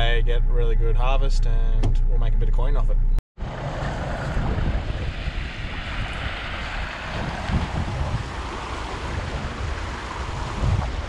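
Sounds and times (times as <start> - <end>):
water rushing: 3.4 - 11.0
wind buffeting microphone: 3.4 - 11.0.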